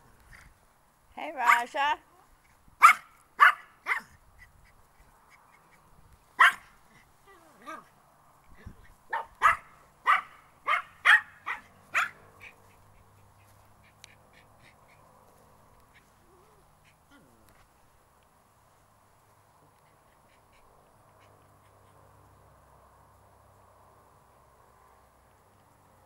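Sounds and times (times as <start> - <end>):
small dog yapping: 2.8 - 4.2, 6.4 - 7.9, 9.1 - 12.7.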